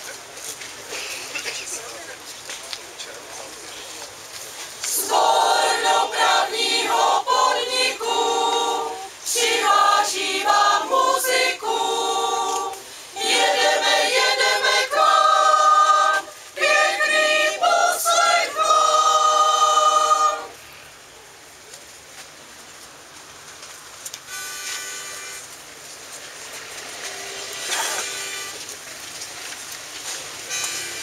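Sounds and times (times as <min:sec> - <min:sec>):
mixed choir singing a cappella: 0:04.9 - 0:20.6.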